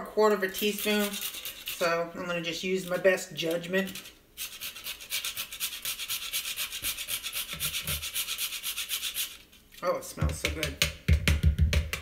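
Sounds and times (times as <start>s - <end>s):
nutmeg scraping on grater: 0.5s - 2.1s, 3.4s - 9.4s.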